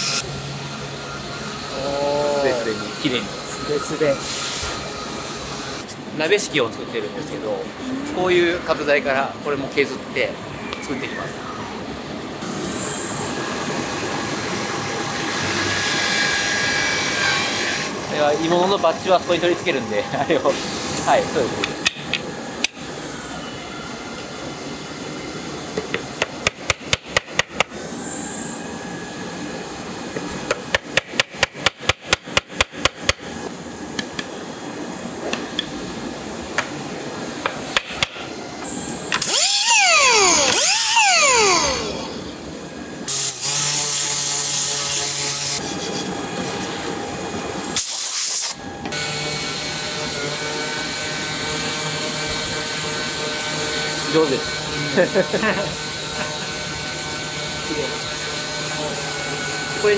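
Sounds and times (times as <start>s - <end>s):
power tool whine: 0.0s - 6.0s, 12.4s - 27.0s, 27.6s - 31.8s, 36.6s - 59.9s
motor running with low hum: 6.6s - 47.8s.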